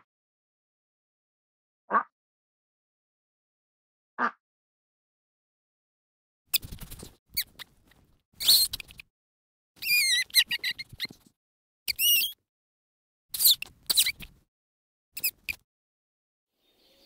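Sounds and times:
animal squealing: 9.8s - 11.2s.

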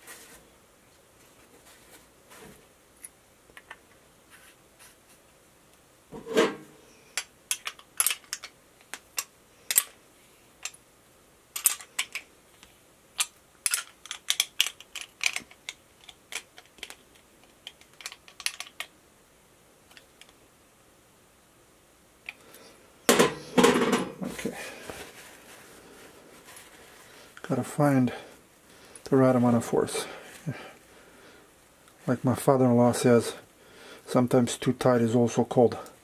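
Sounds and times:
metal wrench clicking on plastic: 13.2s - 18.9s.

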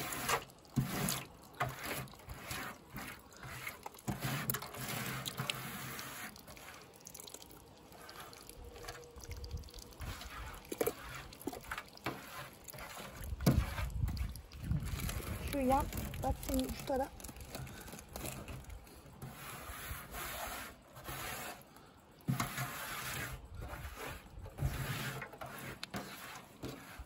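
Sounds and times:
hands squishing tomato pulp: 0.0s - 19.2s
small clicks and splats: 0.0s - 19.4s, 23.3s - 26.8s
juice dripping and trickling: 0.0s - 19.5s, 20.8s - 22.4s.

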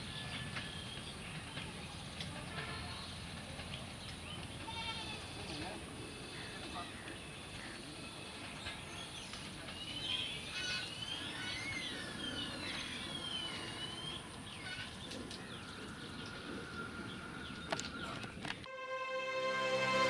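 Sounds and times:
outdoor background noise: 0.0s - 18.8s.

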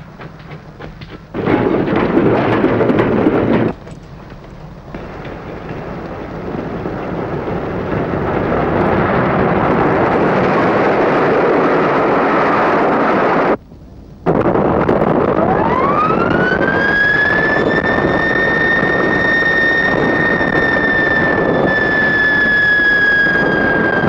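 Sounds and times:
steam train passing: 0.0s - 13.6s.

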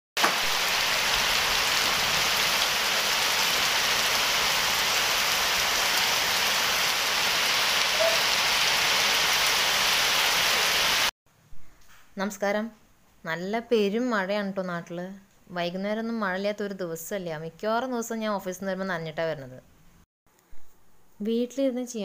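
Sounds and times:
heavy rain falling: 0.2s - 11.1s.

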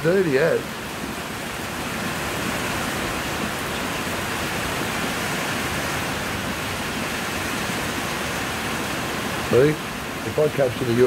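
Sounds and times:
rain falling steadily: 0.0s - 11.0s.

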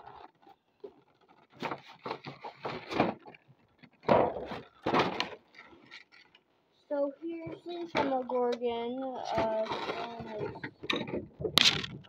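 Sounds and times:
packaging rustling and scraping: 0.0s - 6.4s, 9.2s - 12.0s.

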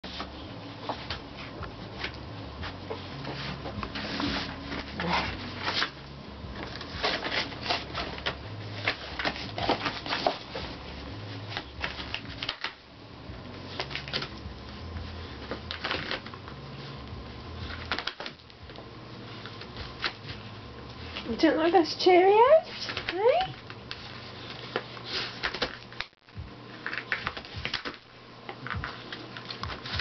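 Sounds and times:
dog ripping cardboard: 2.8s - 12.8s, 13.7s - 16.9s, 17.6s - 18.4s, 22.6s - 26.1s, 26.8s - 28.0s, 28.6s - 30.0s.

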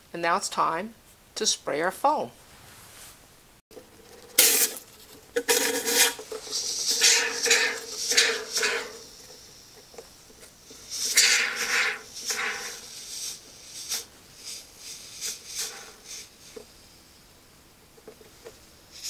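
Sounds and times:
spray foam can hissing: 4.4s - 16.9s.

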